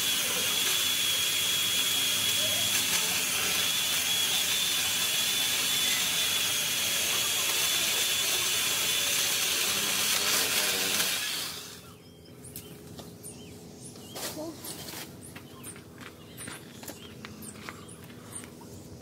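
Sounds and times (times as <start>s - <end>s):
electric chainsaw cutting branch: 0.0s - 11.9s
person speaking: 14.3s - 14.8s.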